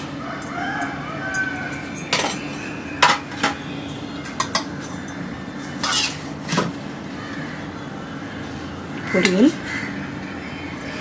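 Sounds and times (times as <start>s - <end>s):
spoon clinking on steel dishes: 1.3s - 5.2s.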